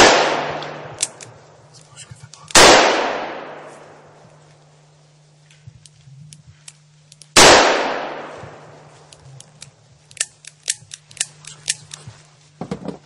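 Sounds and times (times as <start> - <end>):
gunshot with echo: 0.0 - 0.9, 2.6 - 3.7, 7.4 - 8.3
light sharp clicks and crackles: 0.6 - 2.6, 5.4 - 7.4, 8.5 - 12.5.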